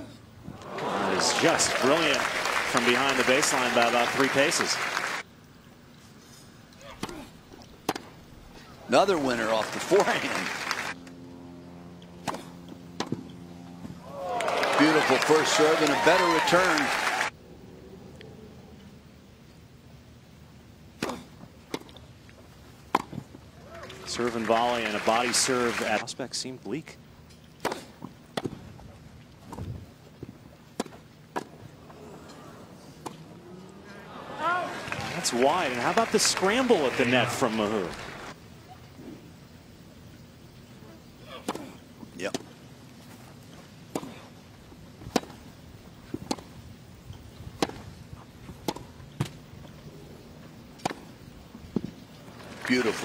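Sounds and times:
tennis rackets hitting ball: 6.8 - 8.2, 12.2 - 14.0, 22.9 - 23.2, 27.6 - 28.6, 30.7 - 31.6, 41.3 - 42.5, 43.9 - 44.3, 45.0 - 46.6, 47.5 - 49.4, 50.8 - 51.9
tennis ball struck by rackets: 12.2 - 13.4, 27.6 - 28.6, 45.0 - 45.5, 46.1 - 46.6, 47.6 - 47.9, 48.6 - 49.4, 50.8 - 51.1.

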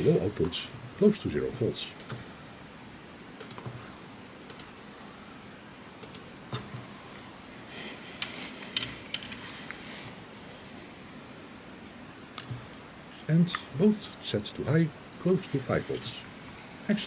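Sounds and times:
computer mouse clicks: 2.0 - 2.3, 3.4 - 3.8, 4.5 - 4.8, 6.0 - 6.8.

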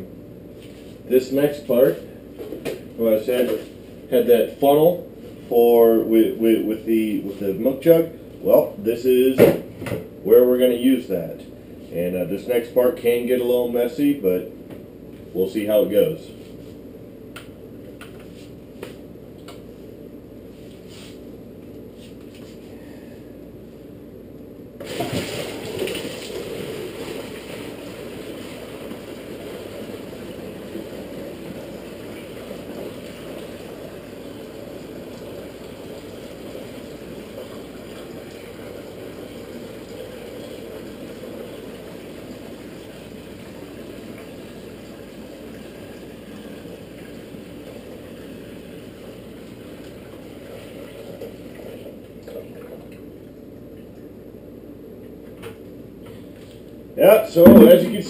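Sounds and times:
loud splash: 24.8 - 27.5
liquid pouring and gurgling: 24.8 - 53.0.

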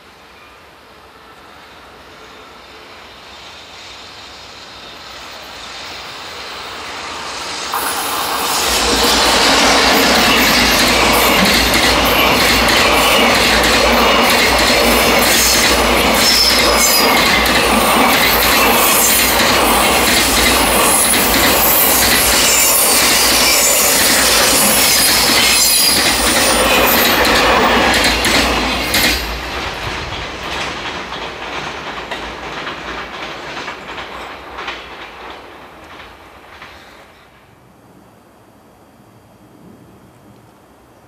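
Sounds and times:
train wheel squeals: 0.0 - 37.4
freight train rumbling past: 0.0 - 41.0
train wheel clacks: 6.7 - 37.3.

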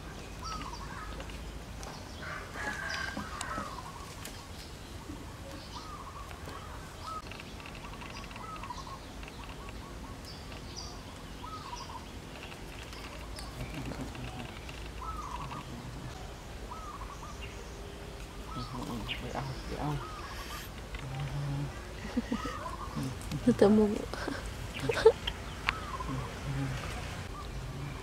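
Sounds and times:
birds chirping and whistling: 0.0 - 28.0.

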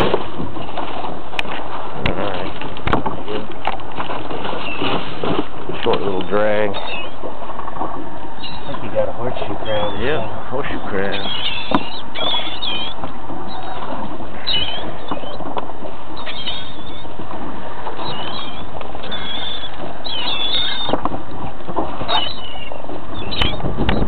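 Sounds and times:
boat engine running: 0.0 - 24.0
constant rushing noise: 0.0 - 24.0
high squealing bird calls: 6.2 - 7.2, 8.4 - 15.4, 16.2 - 17.1, 18.0 - 21.0, 22.1 - 24.0.

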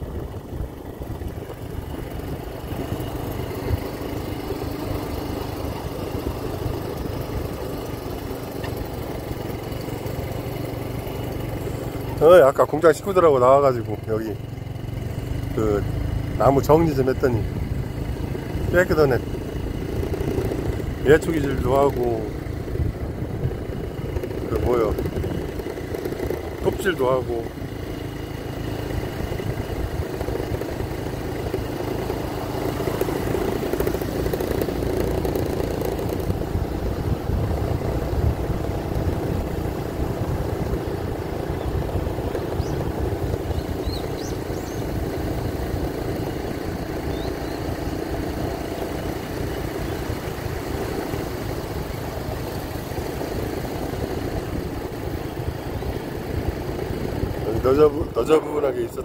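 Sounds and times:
wind rumbling on microphone: 0.0 - 3.9, 17.4 - 27.9, 28.8 - 45.1
scooter engine running: 0.0 - 59.0.

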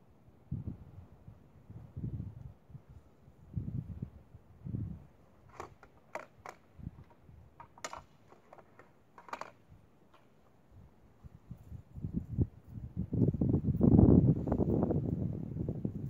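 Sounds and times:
rifle handling clicks and taps: 5.5 - 10.5.

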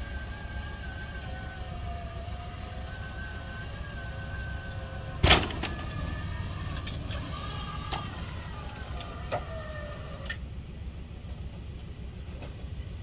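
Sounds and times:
engine running at low speed: 0.0 - 13.0
steady whine: 0.0 - 13.0
loud bang: 5.2 - 6.0.

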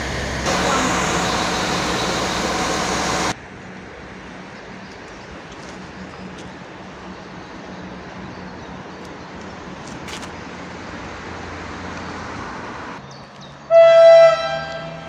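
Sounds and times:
idling diesel engine rumble: 0.0 - 3.4
train horn blast: 13.7 - 15.0.

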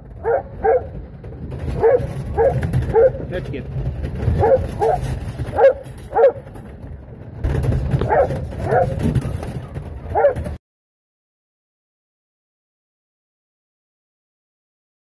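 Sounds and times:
low rumble: 0.0 - 10.6
dog barking: 0.2 - 0.9, 1.7 - 3.3, 4.4 - 6.5, 8.0 - 9.2, 10.1 - 10.6.

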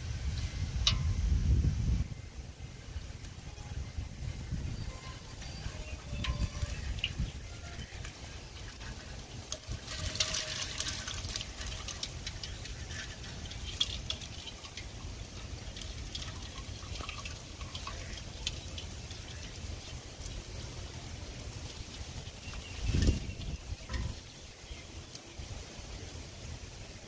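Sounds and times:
water splashing into bucket: 4.9 - 24.4
fish flapping ticks: 4.9 - 25.3.

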